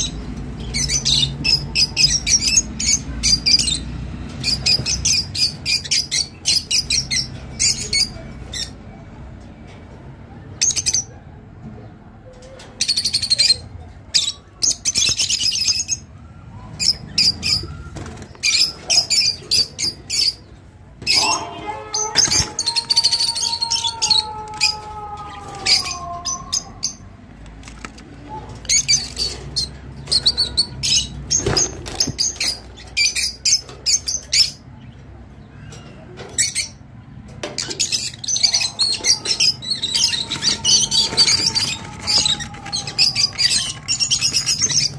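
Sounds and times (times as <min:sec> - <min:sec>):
lovebirds chirping: 0:37.6 - 0:44.9.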